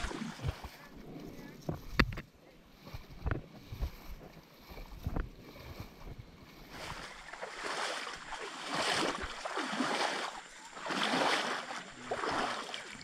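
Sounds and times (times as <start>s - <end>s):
water splashing around wading legs: 0.0s - 13.0s.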